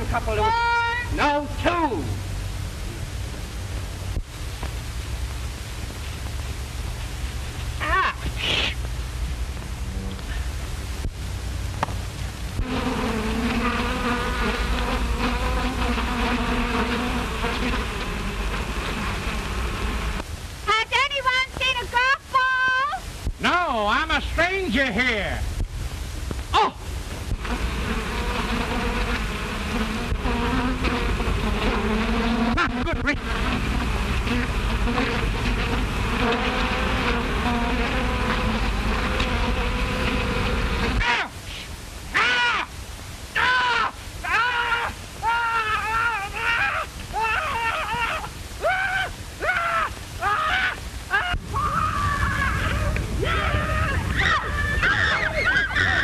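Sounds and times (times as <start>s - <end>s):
bees buzzing: 11.8s - 20.3s, 27.3s - 41.1s.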